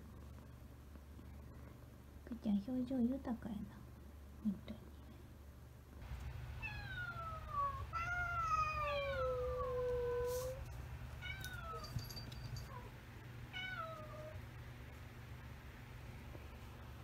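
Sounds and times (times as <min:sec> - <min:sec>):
cat meowing: 0:06.6 - 0:10.5.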